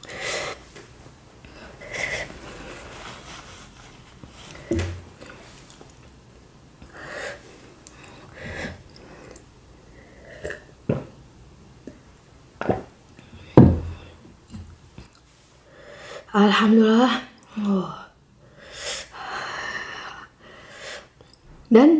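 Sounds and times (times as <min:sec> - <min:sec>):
person drinking: 0:06.8 - 0:10.7.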